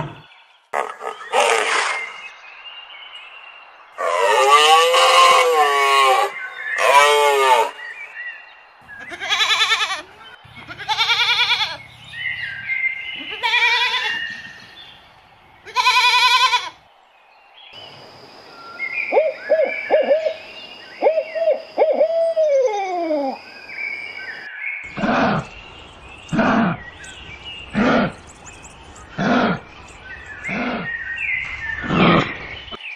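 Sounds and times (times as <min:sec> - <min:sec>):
wavering bleat-like animal calls: 0:09.0 - 0:11.8, 0:13.2 - 0:14.2, 0:15.7 - 0:16.8.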